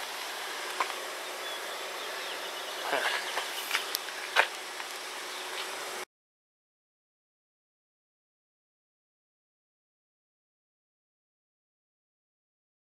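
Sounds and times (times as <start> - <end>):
outdoor background hiss: 0.0 - 6.1.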